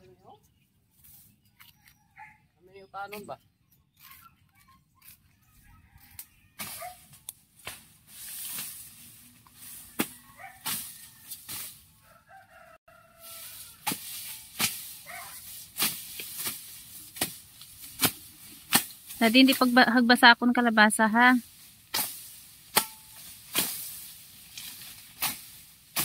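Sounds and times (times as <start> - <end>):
machete slashing through grass: 13.3 - 19.8, 21.6 - 26.0.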